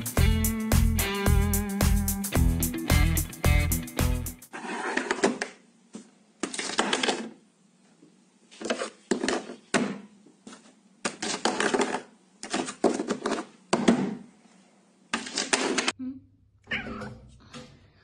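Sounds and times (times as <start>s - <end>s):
paper being pushed about: 4.5s - 5.6s, 6.4s - 7.4s.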